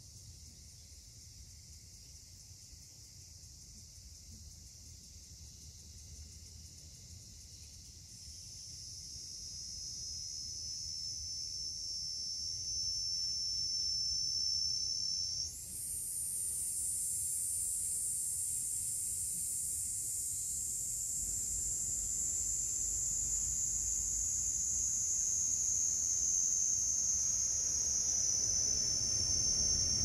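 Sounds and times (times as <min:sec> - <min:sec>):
insects shrilling: 0:07.4 - 0:30.0.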